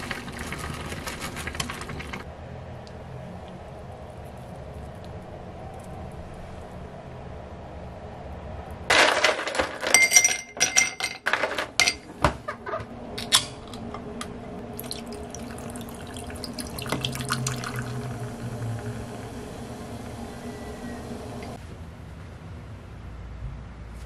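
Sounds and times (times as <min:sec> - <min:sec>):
ice cubes clinking into glass: 0:08.9 - 0:12.0
fizzy drink poured over ice: 0:14.7 - 0:20.2.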